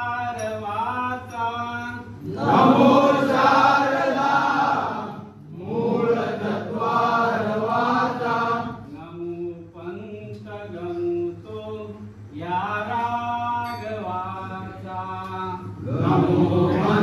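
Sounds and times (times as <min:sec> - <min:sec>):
group singing in chorus: 0:02.2 - 0:09.0, 0:15.7 - 0:17.0.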